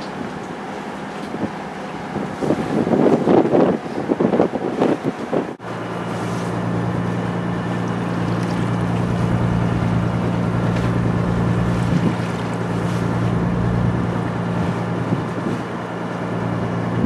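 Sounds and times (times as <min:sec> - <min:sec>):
boat engine humming: 0:00.0 - 0:17.0
wind: 0:00.0 - 0:17.0.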